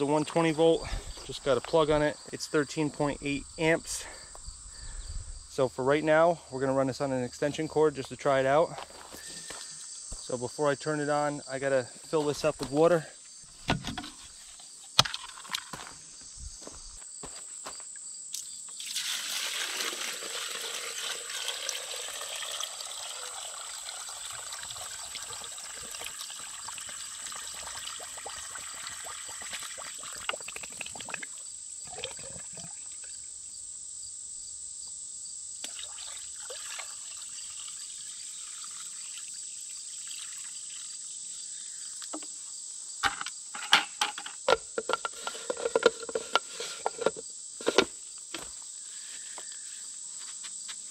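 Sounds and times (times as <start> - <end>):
insects chirping: 0.0 - 50.9
water pouring from bucket: 18.8 - 32.9, 35.6 - 41.2.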